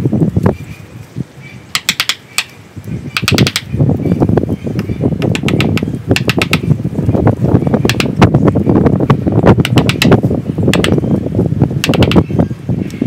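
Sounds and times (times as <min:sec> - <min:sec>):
sharp clicks: 0:01.7 - 0:03.7, 0:04.8 - 0:06.8, 0:07.8 - 0:08.2, 0:09.6 - 0:11.0, 0:11.8 - 0:12.3.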